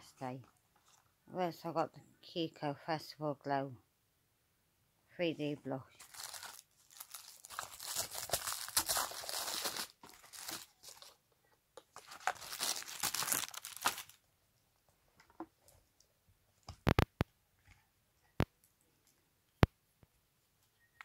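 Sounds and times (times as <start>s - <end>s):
packaging crinkling and tearing: 6.0s - 11.2s, 11.9s - 14.2s.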